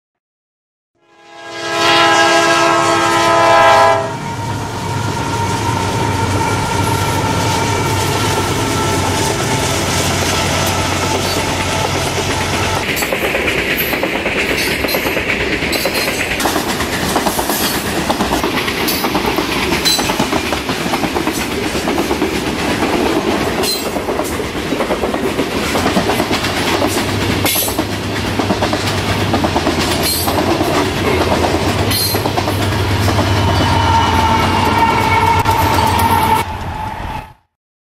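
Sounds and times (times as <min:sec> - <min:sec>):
train horn: 0:01.0 - 0:12.8, 0:32.9 - 0:37.3
diesel locomotives droning: 0:01.1 - 0:37.4
high wheel squeal: 0:04.2 - 0:13.1, 0:31.9 - 0:37.5.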